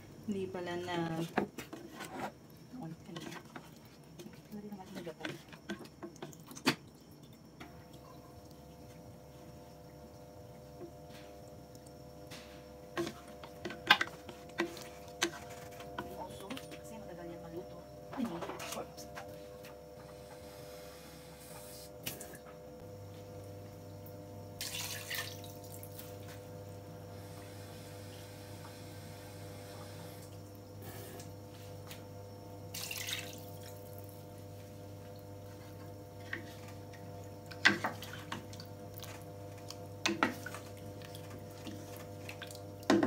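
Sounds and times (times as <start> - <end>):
steady hum: 6.8 - 24.9.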